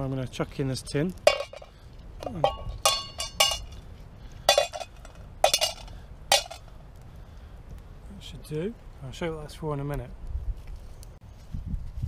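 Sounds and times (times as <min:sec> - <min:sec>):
stones clinking into metal pot: 0:00.9 - 0:03.8, 0:04.4 - 0:06.7.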